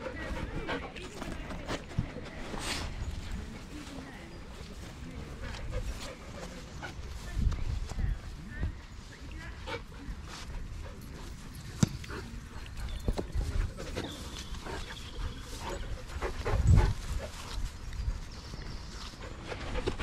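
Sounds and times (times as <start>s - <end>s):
dogs playing: 0.0s - 7.6s, 8.8s - 20.0s.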